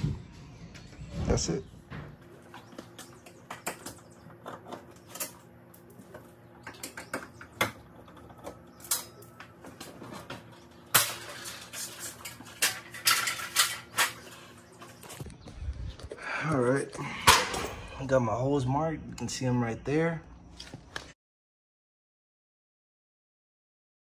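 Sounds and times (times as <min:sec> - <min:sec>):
metal cover scraping rattle: 0:06.6 - 0:14.6.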